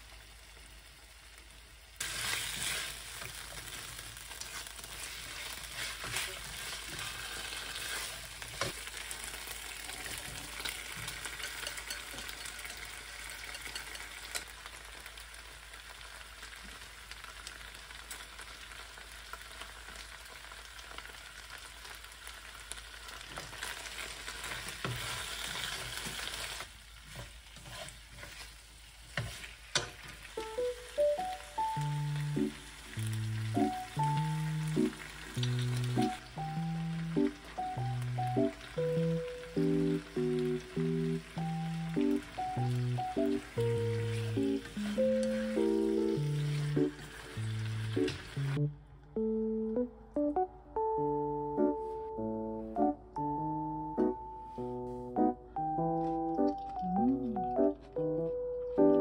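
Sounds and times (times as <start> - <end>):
food sizzling in a pan: 0.0 - 48.7, 51.5 - 52.3
chopsticks stirring food: 2.0 - 14.5, 23.3 - 36.3, 39.5 - 48.3.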